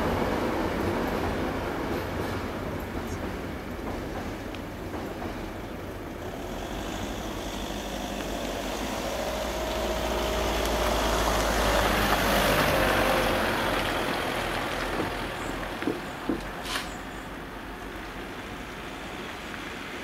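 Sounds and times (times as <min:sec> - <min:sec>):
car driving past: 0:06.4 - 0:15.8.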